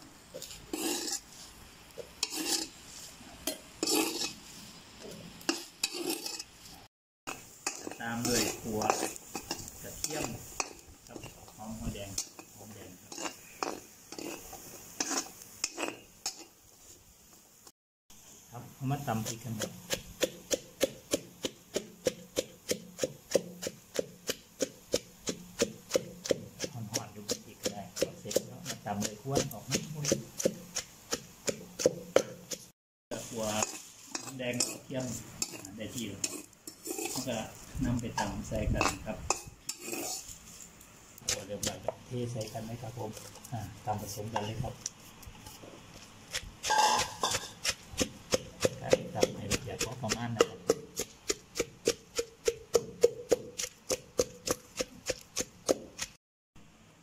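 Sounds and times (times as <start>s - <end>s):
metal spoon scraping a pan: 0.3s - 16.6s, 21.4s - 51.4s
pestle pounding in mortar: 19.1s - 32.7s, 46.3s - 56.2s.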